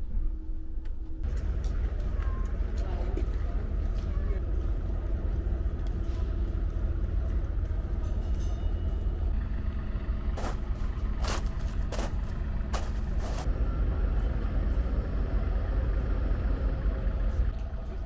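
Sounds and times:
steady low rumble: 0.0s - 18.0s
boots crunching through snow: 10.4s - 13.5s.

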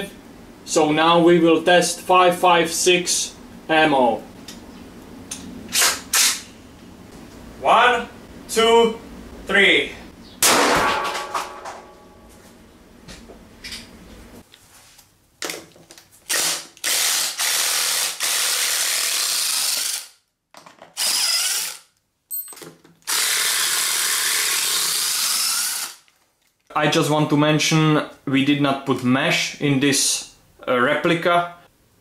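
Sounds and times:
sharp bang with ringing: 10.4s - 12.3s.

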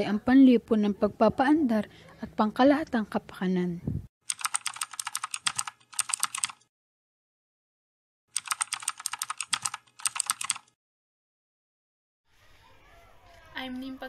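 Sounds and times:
keyboard keys clicking: 4.3s - 6.6s, 8.4s - 10.7s.

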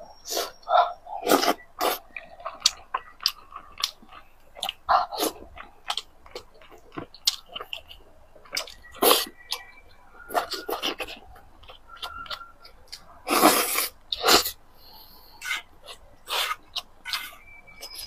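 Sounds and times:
chewing and lip smacking: 0.2s - 18.0s.

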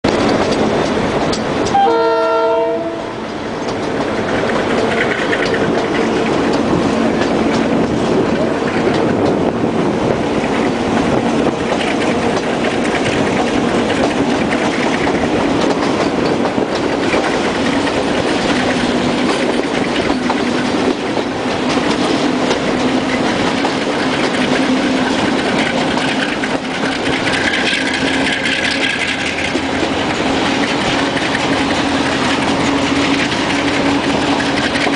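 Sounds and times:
diesel locomotive working: 0.0s - 34.9s
train wheels rumbling on rails: 0.0s - 34.9s
train horn blast: 1.6s - 3.3s.

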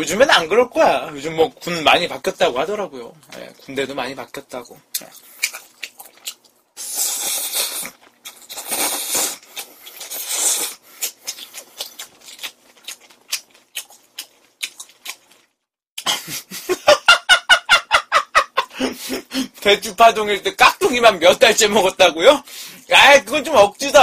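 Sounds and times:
wet chewing and lip smacks: 4.9s - 6.6s, 7.3s - 15.6s
noodles slurped: 5.2s - 15.5s
rapid laughter: 16.0s - 19.4s.

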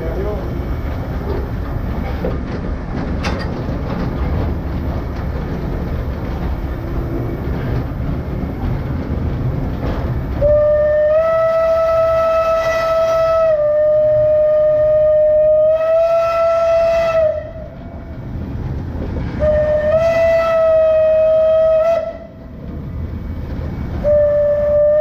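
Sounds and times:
train wheels rumbling on rails: 0.0s - 25.0s
train whistle: 10.4s - 17.7s, 19.4s - 22.4s, 24.0s - 25.0s.

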